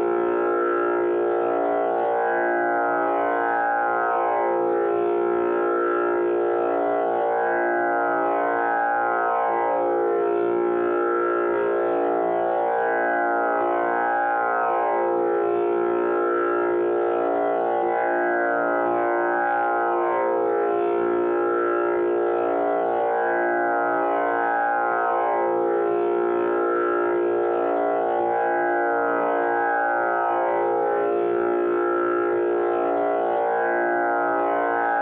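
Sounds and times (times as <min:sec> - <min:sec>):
tanpura drone: 0:00.0 - 0:35.0.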